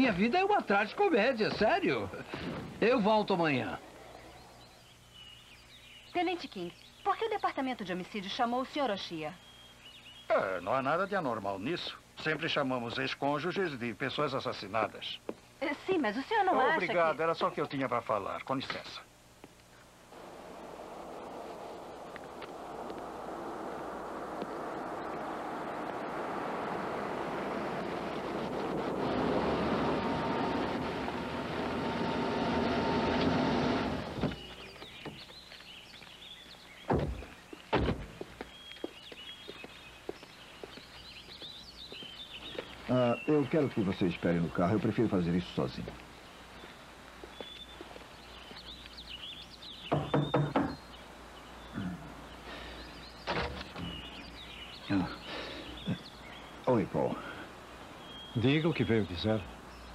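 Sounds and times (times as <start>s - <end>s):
birds chirping: 0.0s - 59.9s
car engine and tyre noise: 20.1s - 35.3s
loud thumps: 28.1s - 35.2s, 36.8s - 38.4s, 49.9s - 50.8s
knocking on wooden door: 49.9s - 50.8s.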